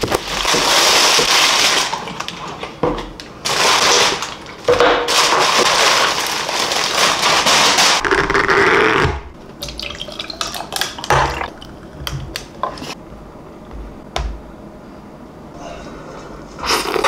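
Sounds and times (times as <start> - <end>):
plastic bag crinkling: 0.0 - 2.6, 3.4 - 8.6.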